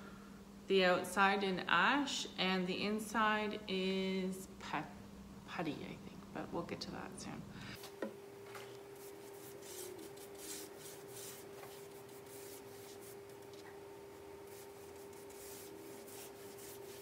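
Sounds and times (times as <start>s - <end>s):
steady low hum: 0.0s - 17.0s
paintbrush swishing on wood: 8.9s - 13.8s, 14.4s - 17.0s.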